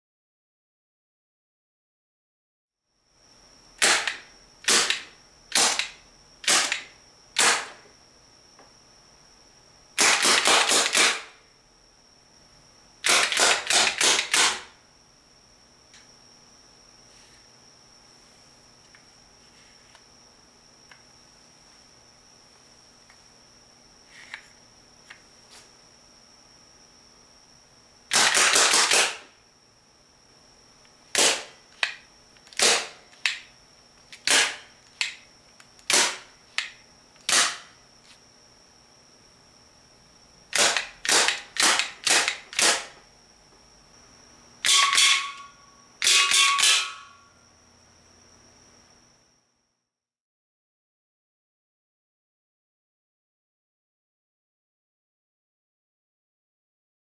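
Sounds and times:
rubber band pistol snaps: 35.8 - 37.7.

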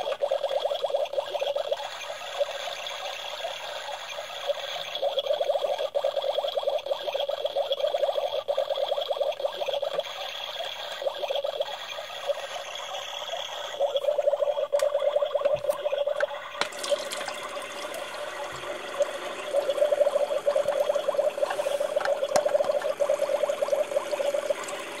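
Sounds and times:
small pump buzzing: 9.2 - 25.0
water trickling into plastic cup: 13.8 - 25.0.

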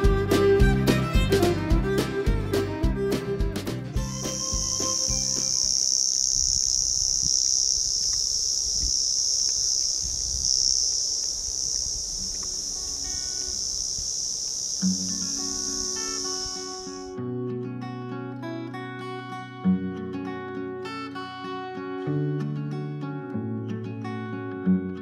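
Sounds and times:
music track: 0.0 - 5.7
insects buzzing: 3.9 - 17.2.

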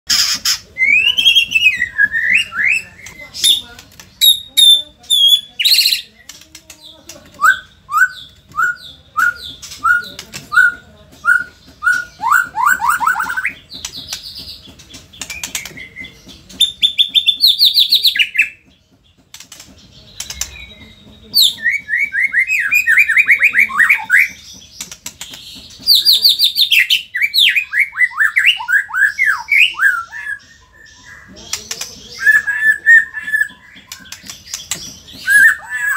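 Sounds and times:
songbird whistling and trilling: 7.4 - 13.7, 20.2 - 24.4, 25.8 - 31.3, 32.1 - 35.9.

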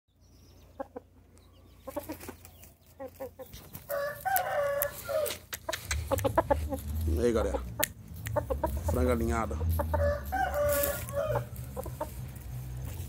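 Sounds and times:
rooster clucking: 0.7 - 13.0
rooster crowing: 3.9 - 5.4, 9.8 - 12.0.

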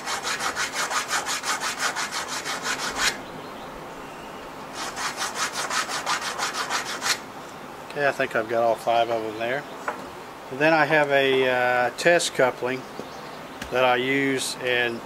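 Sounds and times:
file rasping on metal: 0.0 - 3.2, 4.8 - 7.2.

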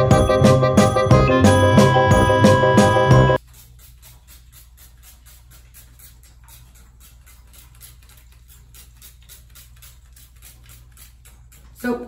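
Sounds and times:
music: 0.0 - 3.4
scissors snipping hair: 3.4 - 12.0.

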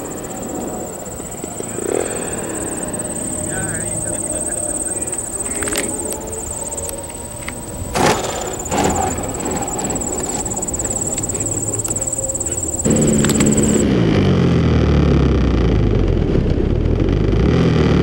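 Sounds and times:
high-pitched insect buzz: 0.0 - 13.8
model plane engine: 0.0 - 13.8.

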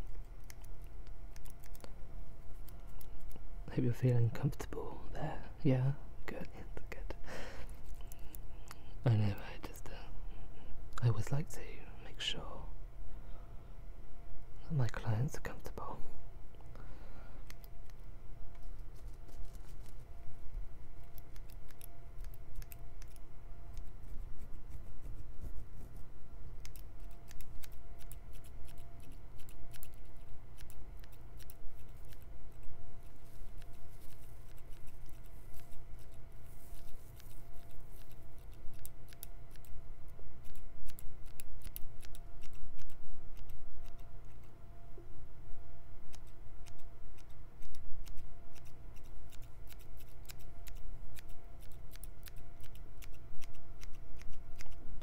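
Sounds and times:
faint steady hum: 0.0 - 55.0
scissors snipping: 21.0 - 24.0, 26.6 - 32.7, 33.4 - 39.8, 40.4 - 44.5, 46.1 - 54.8.

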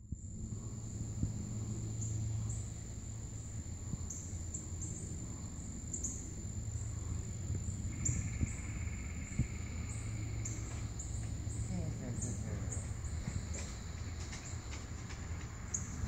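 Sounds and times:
lower pulsing insect trill: 0.0 - 16.0
steady low hum: 0.0 - 16.0
insects trilling high: 0.3 - 16.0.

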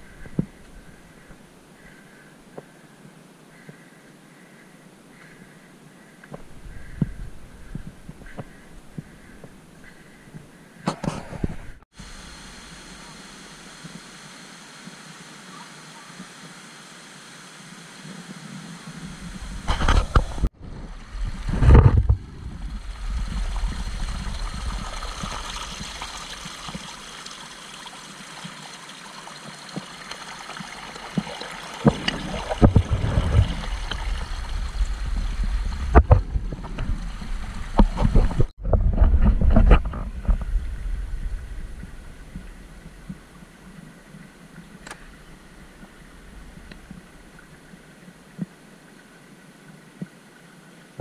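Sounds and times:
stream splashing over rocks: 12.0 - 38.5
low rumbling: 19.0 - 26.7, 31.9 - 47.9.

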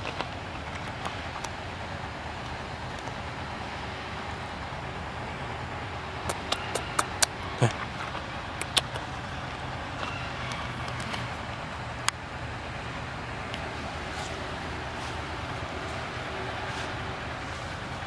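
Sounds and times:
low hum and hiss: 0.0 - 18.0
sharp clicks: 6.2 - 7.5, 8.5 - 9.1.

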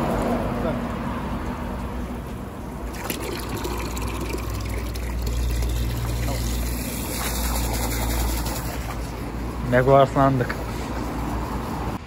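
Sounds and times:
water spraying over a car: 2.9 - 9.6.

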